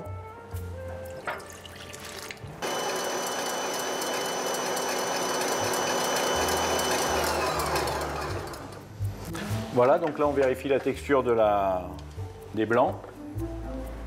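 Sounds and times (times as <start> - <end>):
water poured into steel bowl: 1.0 - 2.6
stand mixer whining: 2.6 - 8.9.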